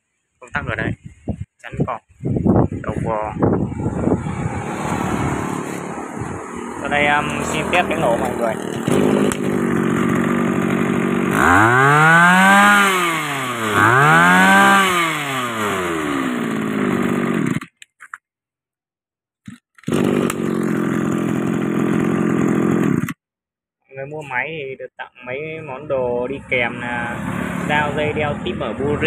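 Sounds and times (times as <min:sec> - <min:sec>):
brush cutter engine idling and revving: 0:03.6 - 0:17.8, 0:19.5 - 0:23.2, 0:26.7 - 0:29.0.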